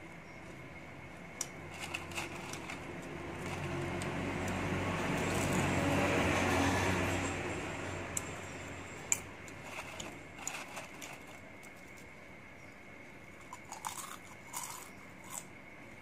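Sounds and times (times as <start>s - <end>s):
vehicle engine passing by: 2.1s - 9.1s.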